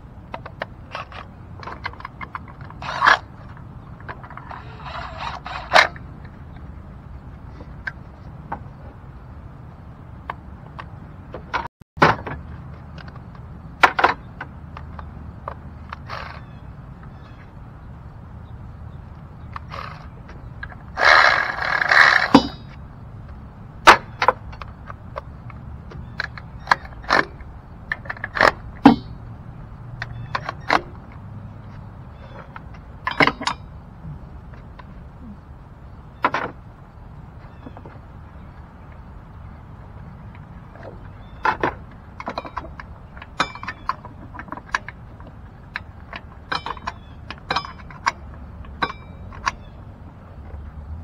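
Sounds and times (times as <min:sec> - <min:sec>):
rattling clatter: 0:30.0 - 0:33.8.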